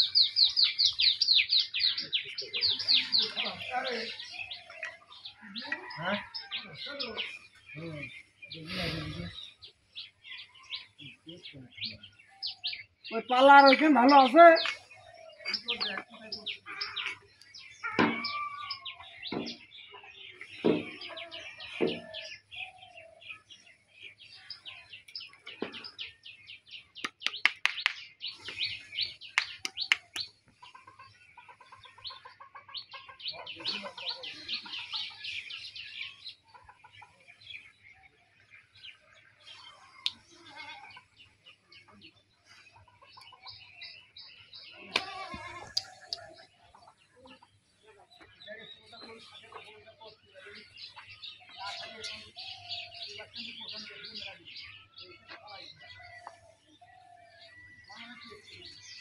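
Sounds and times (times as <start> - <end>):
small birds chirping: 0.0 - 59.0
chickens clucking: 27.0 - 37.9, 39.2 - 59.0.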